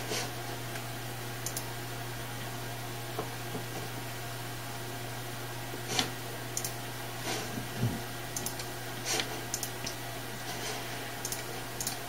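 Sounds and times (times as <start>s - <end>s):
steady low hum: 0.0s - 12.0s
computer mouse clicking: 1.4s - 1.7s, 6.6s - 6.8s, 8.4s - 10.0s, 11.2s - 12.0s.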